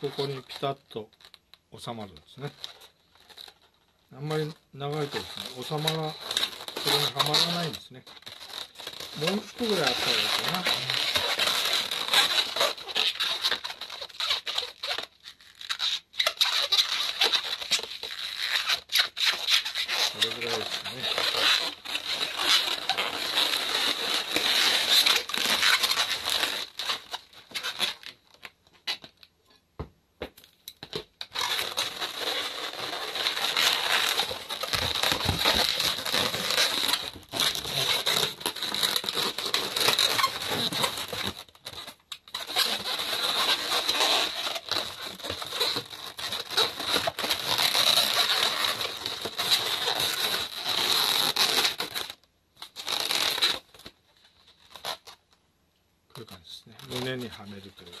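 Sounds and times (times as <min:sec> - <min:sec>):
balloons squeaking and rubbing: 0:00.0 - 0:29.3, 0:30.8 - 0:55.3, 0:56.1 - 0:58.0.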